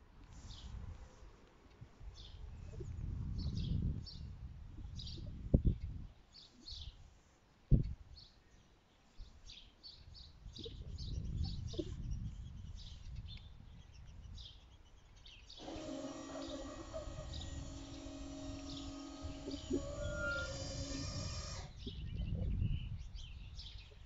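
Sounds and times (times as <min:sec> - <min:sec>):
small birds chirping: 0:00.3 - 0:24.0
barrier motor hum: 0:15.6 - 0:22.0.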